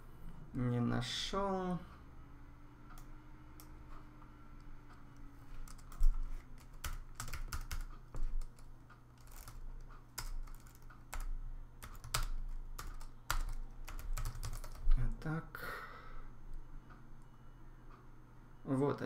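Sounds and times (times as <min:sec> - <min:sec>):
typing on computer keyboard: 0:05.6 - 0:15.0.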